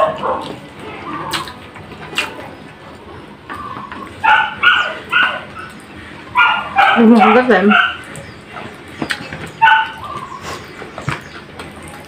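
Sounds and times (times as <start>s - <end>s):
small dog yipping: 3.6s - 5.7s, 6.4s - 8.0s, 9.6s - 10.4s.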